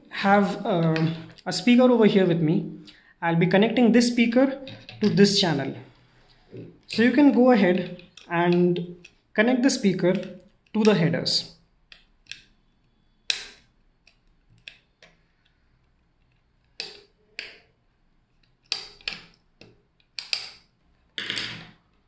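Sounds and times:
clicks taps and scrapes of handling: 0:04.6 - 0:05.2.

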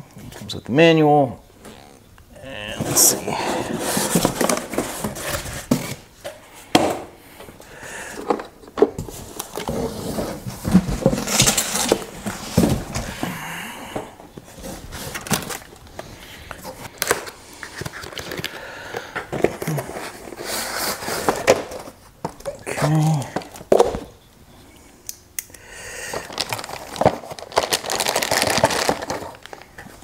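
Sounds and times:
cardboard scraping and rustling: 0:02.7 - 0:06.1, 0:09.0 - 0:13.3, 0:14.4 - 0:15.8.

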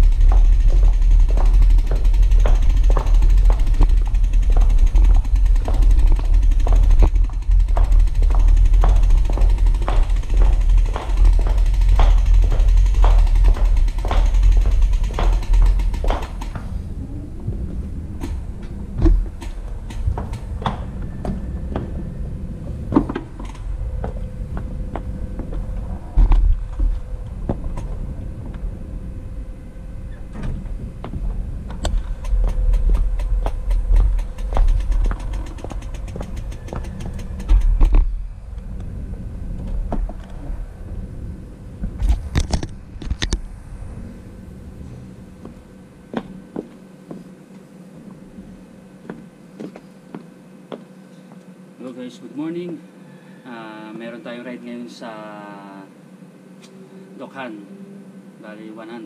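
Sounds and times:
bike clicks and knocks: 0:00.0 - 0:16.7, 0:18.2 - 0:22.0, 0:30.3 - 0:38.1
wind and road noise: 0:00.0 - 0:47.2
faint steady hum: 0:00.0 - 0:59.0.

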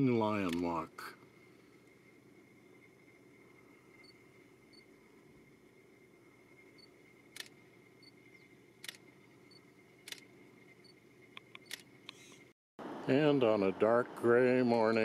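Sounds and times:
faint camera whine: 0:00.0 - 0:12.5, 0:13.1 - 0:15.0
soft clicks: 0:00.4 - 0:00.7, 0:11.3 - 0:12.5.

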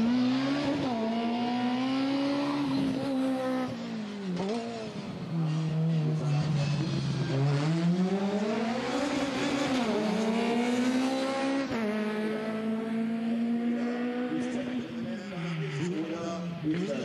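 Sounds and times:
two-stroke kart engine revving: 0:06.9 - 0:14.6.

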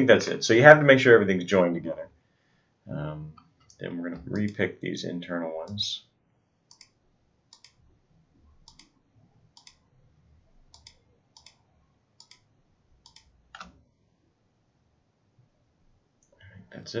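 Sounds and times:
computer mouse clicking: 0:06.7 - 0:07.8, 0:08.6 - 0:09.8, 0:10.7 - 0:13.8.

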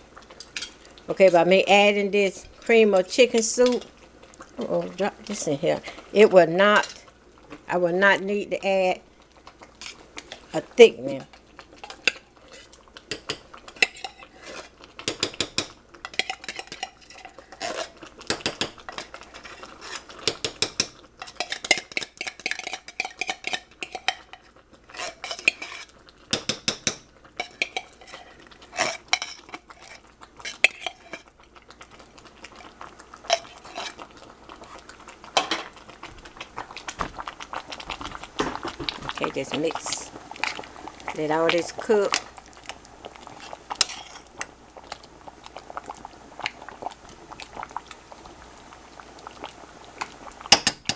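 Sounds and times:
spoon scraping and clinking on can: 0:11.9 - 0:31.2.

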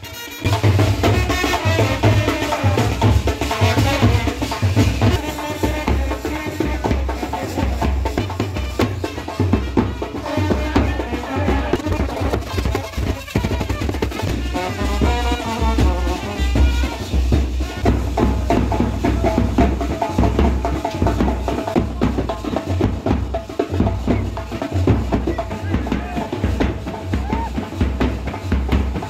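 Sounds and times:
brass band playing dance rhythm: 0:00.0 - 0:29.0
rapid drum strokes: 0:00.0 - 0:29.0
bass drum thumping: 0:07.7 - 0:29.0.

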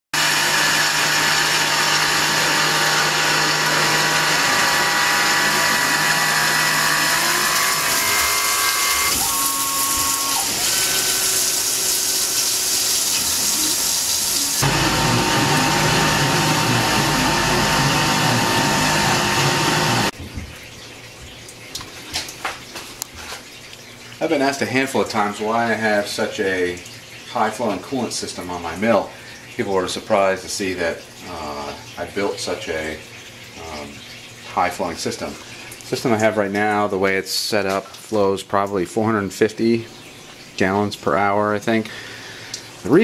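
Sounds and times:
coolant hissing and splashing: 0:00.2 - 0:14.7, 0:20.9 - 0:43.0
milling machine spindle whine: 0:00.2 - 0:20.1.

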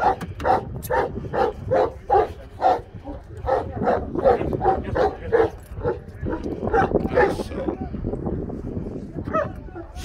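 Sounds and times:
dog barking rapidly: 0:00.0 - 0:02.8, 0:03.5 - 0:07.4.

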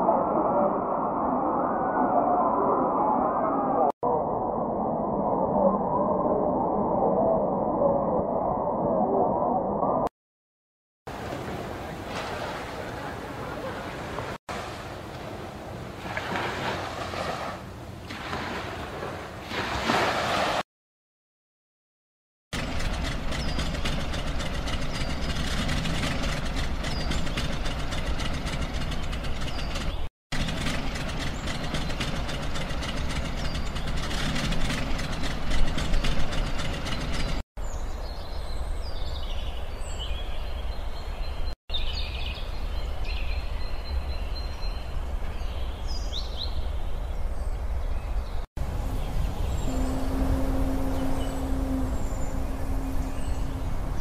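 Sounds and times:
tractor engine running: 0:22.6 - 0:37.4
birds chirping: 0:22.6 - 0:54.0
low steady rumble: 0:44.1 - 0:54.0.

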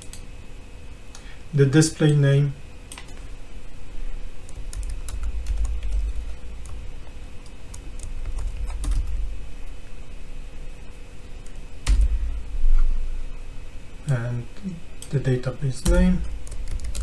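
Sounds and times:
keyboard typing: 0:04.4 - 0:09.2, 0:15.8 - 0:17.0.

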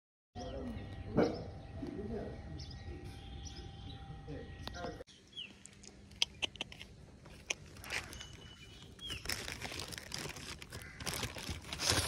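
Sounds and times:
bird chirp: 0:00.4 - 0:09.6
plastic bag crinkling: 0:07.6 - 0:12.0.

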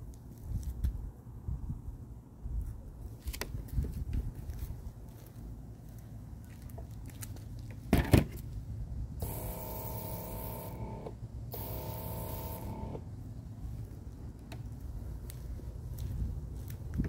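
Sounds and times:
aerosol spray can hissing: 0:11.6 - 0:12.8.

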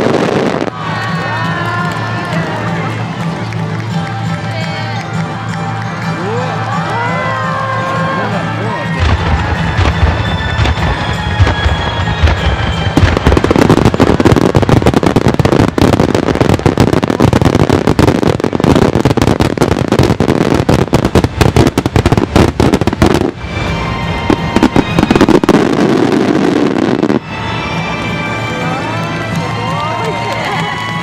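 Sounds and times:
fireworks bangs and crackling: 0:00.0 - 0:04.5, 0:08.8 - 0:28.6
crackling rush of fireworks: 0:00.0 - 0:31.0.

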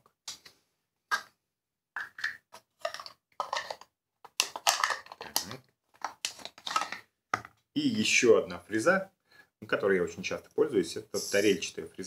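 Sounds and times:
plastic cases clicking and rattling: 0:02.8 - 0:07.6.

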